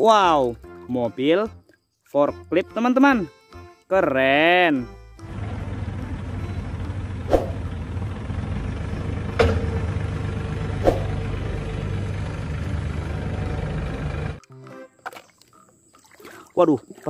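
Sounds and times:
forklift engine running: 0:05.2 - 0:14.4
sharp knocks: 0:09.3 - 0:09.8.

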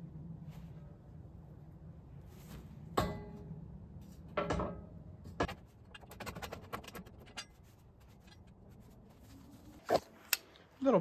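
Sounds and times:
metallic clicks and scrapes: 0:05.3 - 0:10.5.

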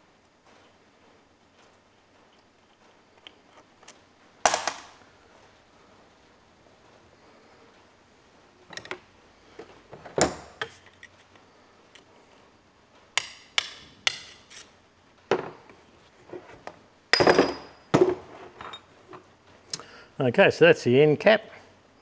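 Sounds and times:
hammer tapping on metal: 0:13.2 - 0:14.4
metallic knocks of hand tools: 0:13.2 - 0:14.6
spanner levering on metal: 0:13.2 - 0:14.7.

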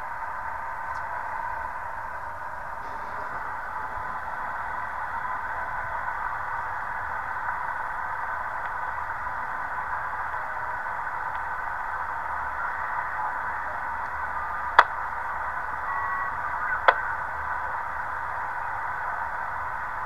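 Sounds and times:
radio static hiss: 0:00.0 - 0:20.0.

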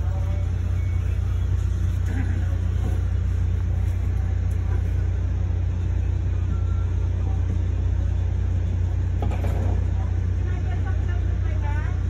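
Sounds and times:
train coach rumble: 0:00.0 - 0:12.0.

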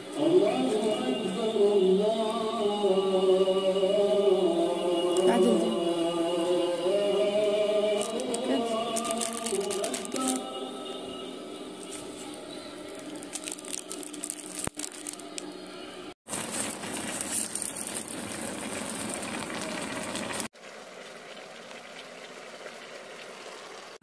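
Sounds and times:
grains crackling on hot coals: 0:07.9 - 0:10.4, 0:11.8 - 0:24.0
plastic bag crinkling: 0:07.9 - 0:10.5, 0:11.8 - 0:15.6, 0:16.3 - 0:20.5
pot boiling with hiss: 0:11.8 - 0:24.0.

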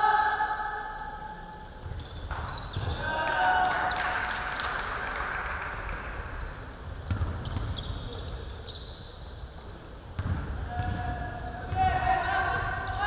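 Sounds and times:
sneakers squeaking: 0:01.6 - 0:03.2, 0:05.6 - 0:13.0
basketball bouncing on hardwood: 0:10.2 - 0:11.1.

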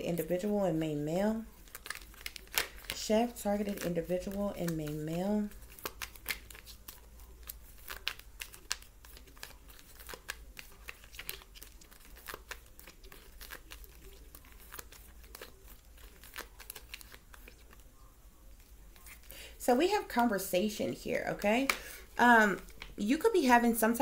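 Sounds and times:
cards being shuffled: 0:01.6 - 0:17.9, 0:18.6 - 0:19.4, 0:21.6 - 0:23.0.

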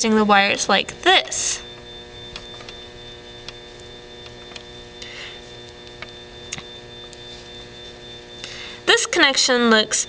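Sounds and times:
electrical hum: 0:00.0 - 0:10.0
faint irregular clicks: 0:03.4 - 0:07.2.

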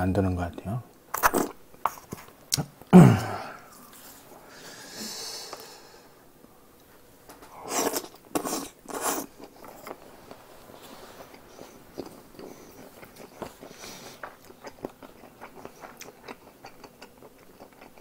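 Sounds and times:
man grunting: 0:02.9 - 0:03.6
chewing: 0:07.7 - 0:18.0.

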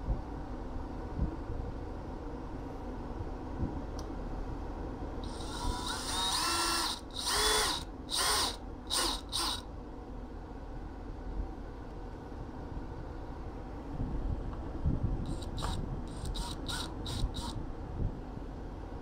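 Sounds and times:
cordless drill whining: 0:05.2 - 0:09.6, 0:15.3 - 0:17.6.

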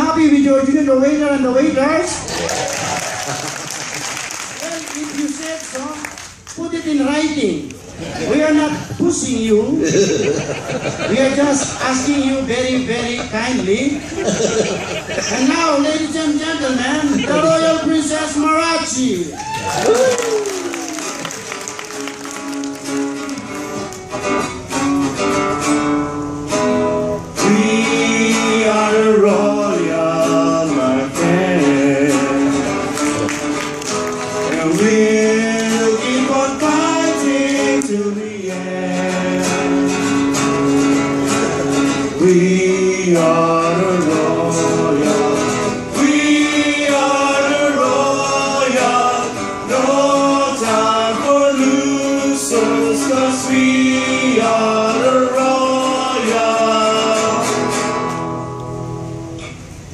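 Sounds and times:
strummed acoustic guitars: 0:20.4 - 0:59.9
men singing together: 0:27.4 - 0:33.0, 0:34.4 - 0:40.0, 0:42.2 - 0:57.6.

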